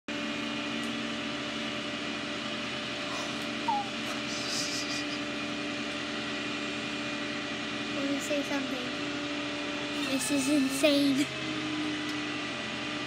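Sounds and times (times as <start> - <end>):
vehicle engine idling: 0.2 - 11.2
falling bird chirp: 3.1 - 5.2.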